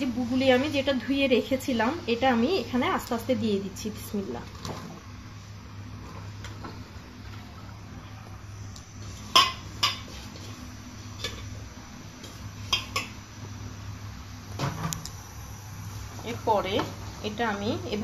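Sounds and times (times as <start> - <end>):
steady low hum: 0.0 - 18.0
metal cookware clanking: 9.3 - 10.1, 12.6 - 13.2.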